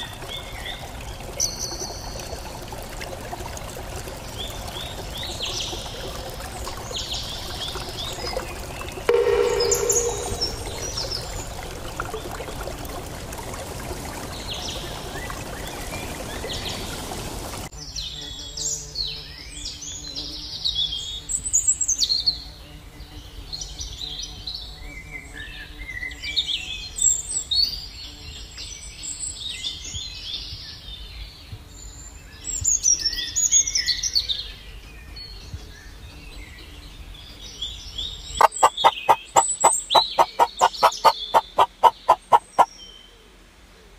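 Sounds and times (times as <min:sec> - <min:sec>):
birds chirping: 0:06.8 - 0:12.0, 0:37.6 - 0:43.0.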